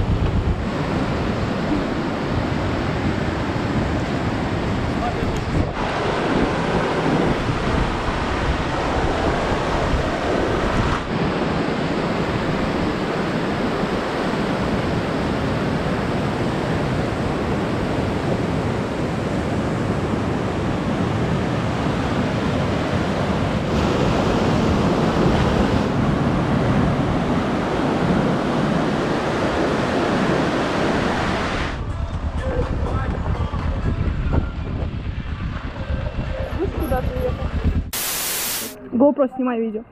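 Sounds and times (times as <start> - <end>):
river rushing over rocks: 5.5 - 17.9.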